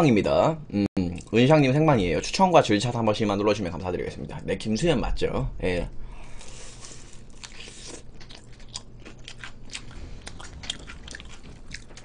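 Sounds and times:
crunchy fried chicken chewing: 6.4 - 12.0.

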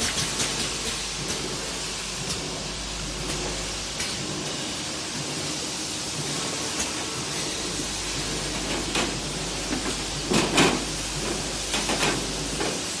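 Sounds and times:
sharp mechanical knocks and clacks: 0.0 - 5.5, 8.1 - 12.9
filling machine hiss and hum: 0.0 - 13.0.

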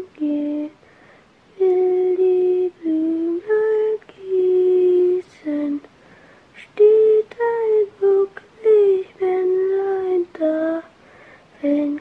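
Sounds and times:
woman singing lullaby melody: 0.0 - 0.9, 1.5 - 12.0.

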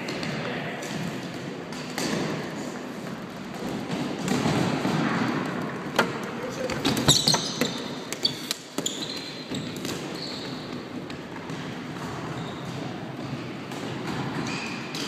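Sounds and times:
shoes squeaking on court floor: 6.0 - 15.0.

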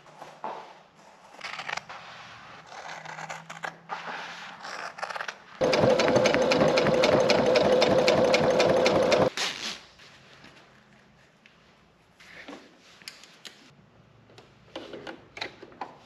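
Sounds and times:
sewing machine running: 5.6 - 9.3.

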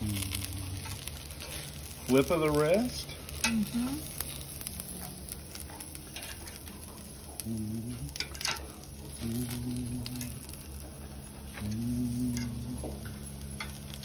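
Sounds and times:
faint cooking crackle: 0.0 - 14.0
metal tongs clicking on skewers: 3.0 - 7.5, 8.1 - 10.6, 11.6 - 14.0.

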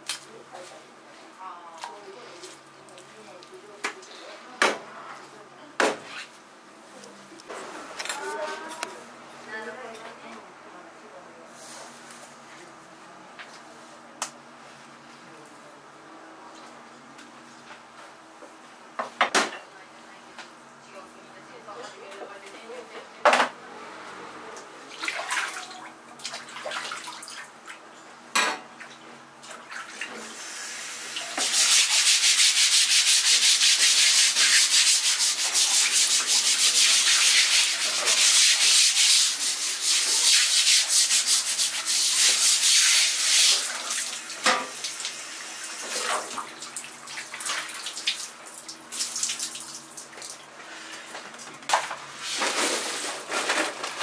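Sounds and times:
water running: 29.4 - 50.5
brush scrubbing cutting board: 31.4 - 43.6.

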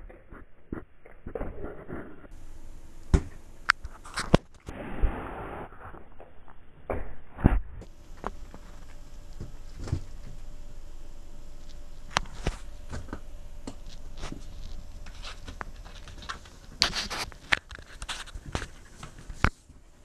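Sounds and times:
faint steady hiss: 7.8 - 20.0.

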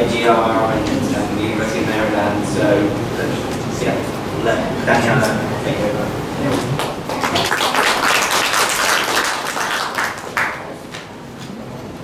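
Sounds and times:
audience applauding: 6.8 - 11.1.

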